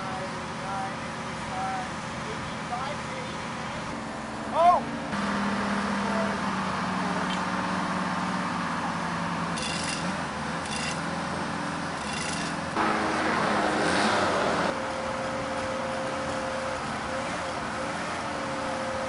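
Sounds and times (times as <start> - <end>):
crane engine running: 0.0 - 19.0
metallic clinks of steel parts: 9.6 - 11.0
loud rushing noise: 12.8 - 14.8.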